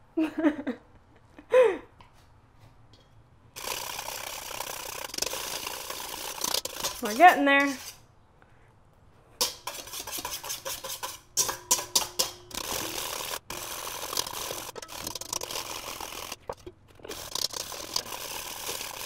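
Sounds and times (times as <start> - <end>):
whisk rattling in metal bowl: 3.6 - 8.0, 9.4 - 19.0.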